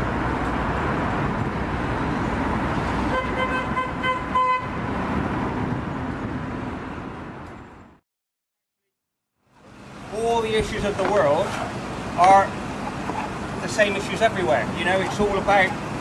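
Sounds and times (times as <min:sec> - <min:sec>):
city road traffic: 0:00.0 - 0:08.0, 0:09.3 - 0:16.0
car horn toots: 0:03.1 - 0:04.8.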